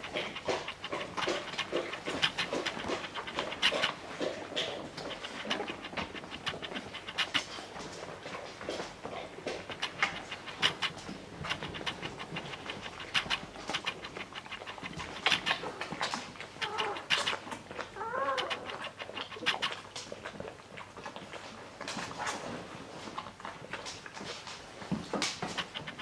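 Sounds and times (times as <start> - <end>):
puppies suckling: 0.0 - 26.0
puppy squeaking: 16.6 - 17.3.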